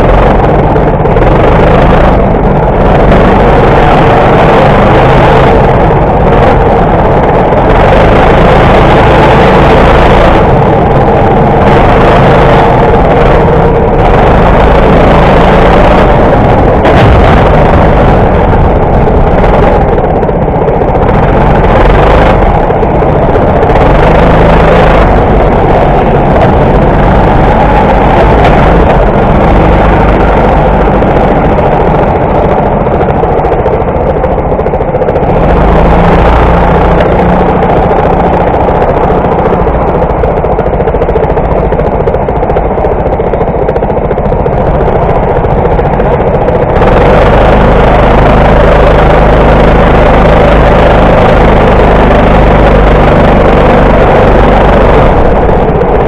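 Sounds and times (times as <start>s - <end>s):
go-kart engine running: 0.0s - 56.0s.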